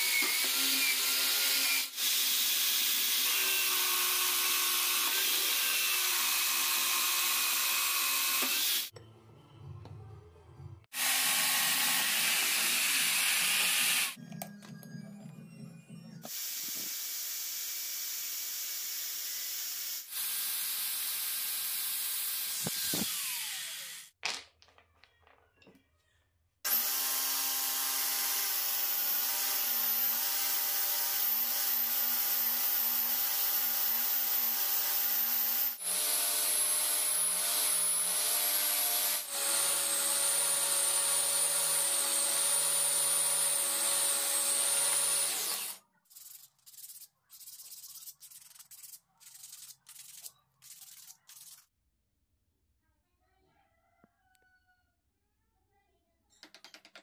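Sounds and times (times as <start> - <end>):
cordless drill spinning: 22.4 - 24.1, 33.0 - 46.5
sandpaper strokes on wood: 46.1 - 51.7.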